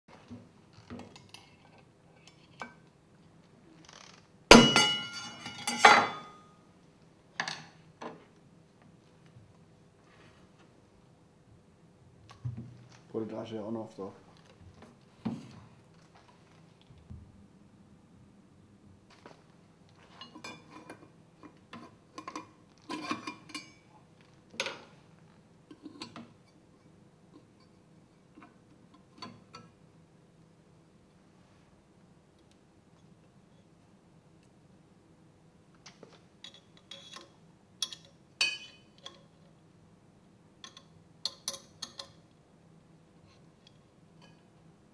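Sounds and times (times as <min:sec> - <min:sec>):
loud metallic clangs with ringing: 0:04.5 - 0:06.5.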